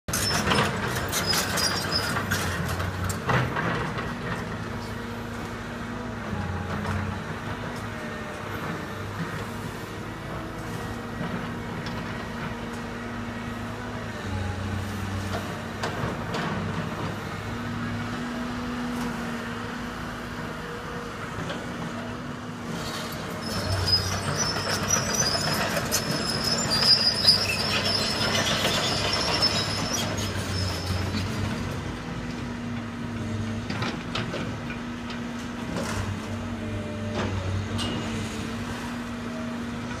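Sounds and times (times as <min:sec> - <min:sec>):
high metallic squeal: 0:00.1 - 0:02.2, 0:23.4 - 0:31.2
excavator diesel engine running: 0:00.1 - 0:40.0.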